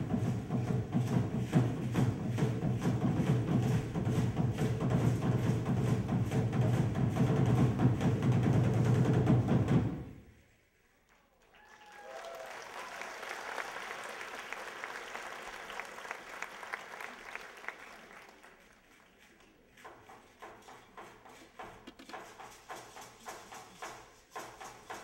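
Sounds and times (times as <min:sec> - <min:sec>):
audience applauding: 0:11.0 - 0:20.4.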